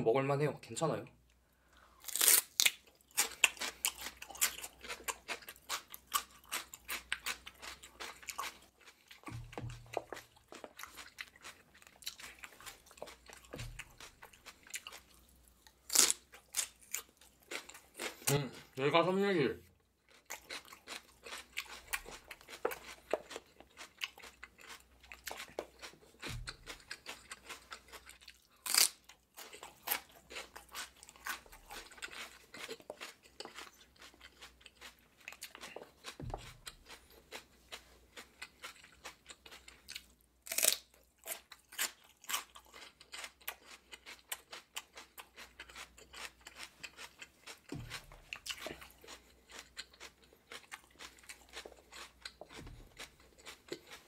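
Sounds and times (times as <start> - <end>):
crunchy celery chewing: 1.8 - 18.8, 19.9 - 54.0
sharp crunching bites: 2.0 - 15.2, 15.8 - 18.5, 20.2 - 39.7, 40.4 - 54.0.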